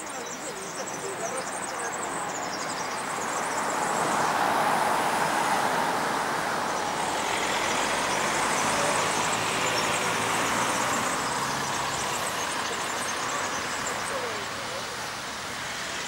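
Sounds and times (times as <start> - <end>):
faint insect chirping: 0.0 - 16.0.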